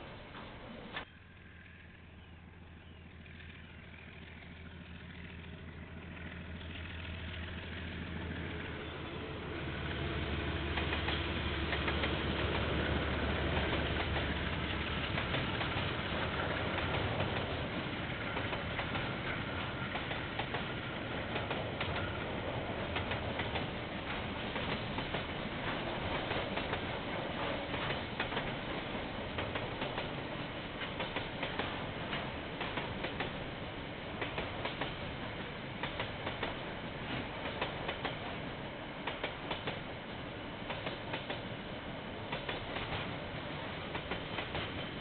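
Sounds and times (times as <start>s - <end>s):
diesel locomotive rumbling: 0.0s - 45.0s
wheels clicking over rail joints: 10.6s - 45.0s.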